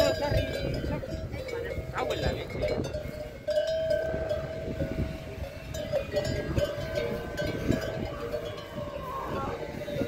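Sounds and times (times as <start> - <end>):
livestock bells clanking: 0.0 - 10.0.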